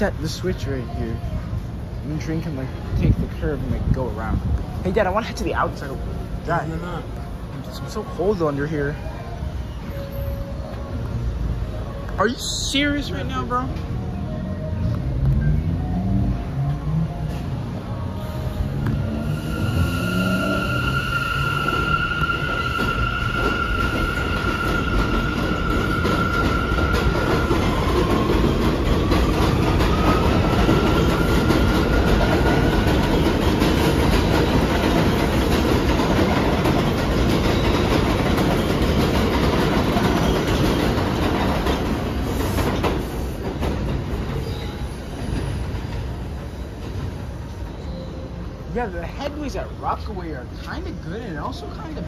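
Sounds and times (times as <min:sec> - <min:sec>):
train rumbling past on tracks: 0:00.0 - 0:52.0
high steady squeal: 0:19.1 - 0:28.0.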